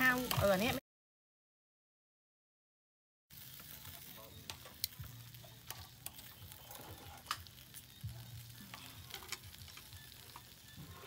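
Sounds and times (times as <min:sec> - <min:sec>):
frying hiss: 0:00.0 - 0:00.8, 0:03.3 - 0:11.0
utensils clicking and tapping: 0:08.6 - 0:10.6.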